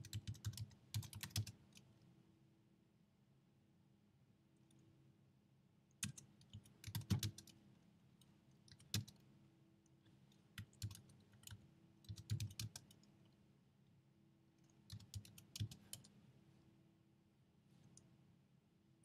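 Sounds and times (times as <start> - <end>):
keyboard typing: 0.0 - 1.9, 6.0 - 7.6, 8.6 - 9.2, 10.6 - 13.1, 14.6 - 16.1.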